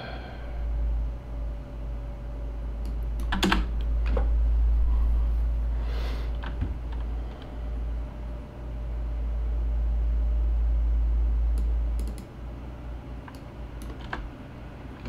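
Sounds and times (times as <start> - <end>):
steady low hum: 0.0 - 15.0
computer mouse clicks: 11.6 - 12.3.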